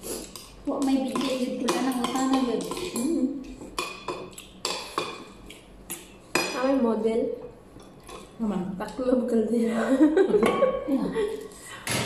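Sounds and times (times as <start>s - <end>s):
voices: 0.7s - 3.6s.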